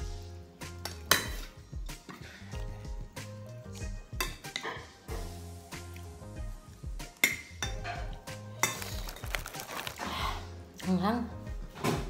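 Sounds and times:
background music: 0:00.0 - 0:12.0
cutlery clinking on ceramic plates: 0:04.2 - 0:05.0, 0:07.2 - 0:09.3.

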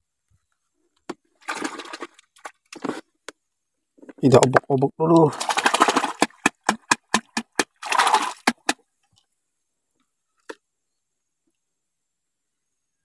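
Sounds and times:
hand splashing shallow water: 0:05.3 - 0:08.8.

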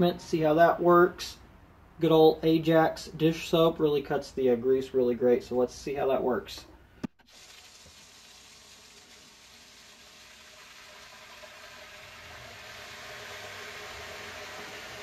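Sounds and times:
water pouring into sink: 0:07.3 - 0:15.0.

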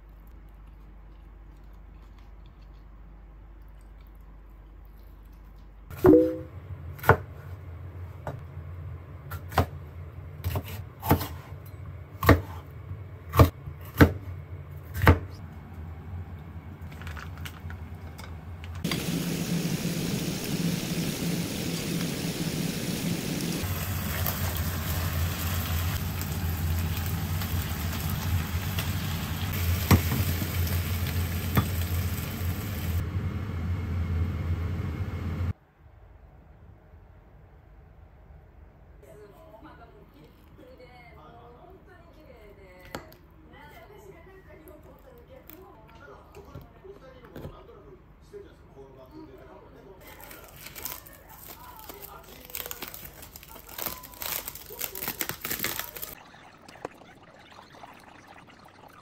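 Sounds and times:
chicken sizzling in frying pan: 0:18.8 - 0:33.0.

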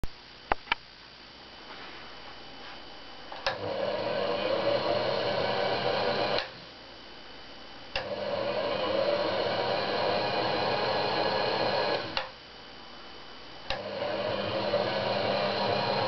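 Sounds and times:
yarn winder motor whirring: 0:03.4 - 0:06.7, 0:07.9 - 0:12.3, 0:13.7 - 0:16.0.

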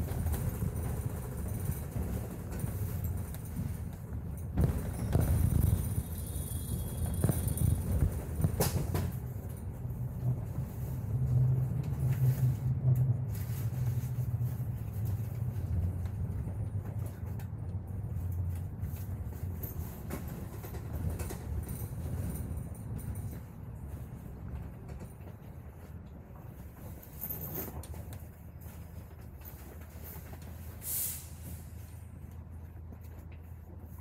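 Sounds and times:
knocks and rattles: 0:00.0 - 0:09.6
bus engine and road drone: 0:00.0 - 0:34.0.

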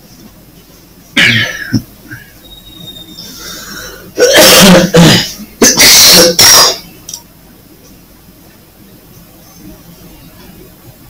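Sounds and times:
man coughing: 0:01.2 - 0:02.2, 0:04.1 - 0:06.8.

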